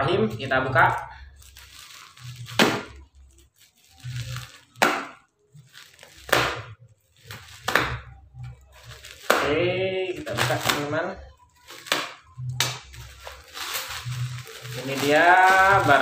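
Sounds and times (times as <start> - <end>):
plastic scraping and rustling: 0.2 - 16.0
knife ripping plastic and tape: 1.4 - 8.1, 8.7 - 10.9, 11.6 - 16.0.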